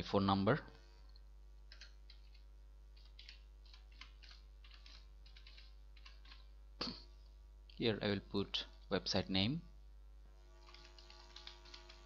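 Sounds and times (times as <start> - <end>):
keyboard keystrokes: 3.0 - 6.4.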